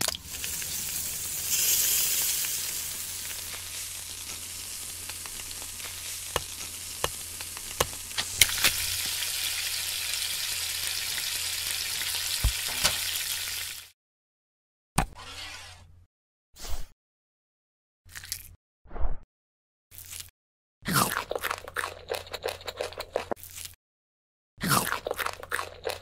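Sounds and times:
food sizzling in a pan: 0:00.0 - 0:13.9
pops and crackles: 0:03.2 - 0:09.2.

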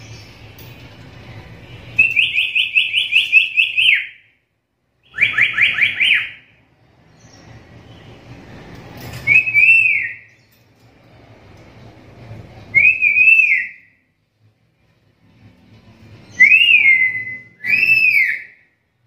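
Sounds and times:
parrot whistled calls: 0:02.0 - 0:04.3, 0:05.0 - 0:06.4, 0:09.2 - 0:10.3, 0:12.7 - 0:14.0, 0:16.3 - 0:18.7.

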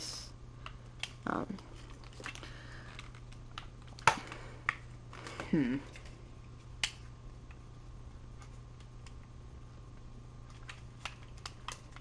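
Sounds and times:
steady low hum: 0:00.0 - 0:12.0
plastic toy parts clicking: 0:10.5 - 0:12.0.

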